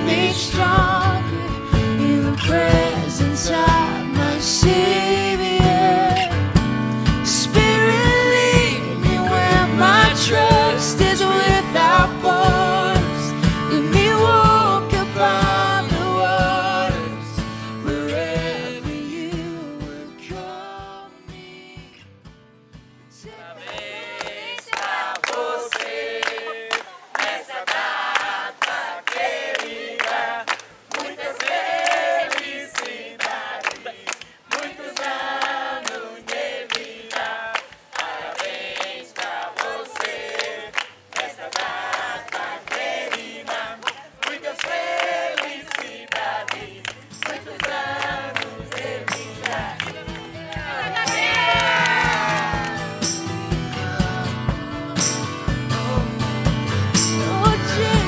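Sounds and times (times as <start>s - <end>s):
group of adults singing together: 0.0s - 22.0s, 23.2s - 56.4s, 57.0s - 58.0s
rhythmic hand clapping: 23.6s - 58.0s.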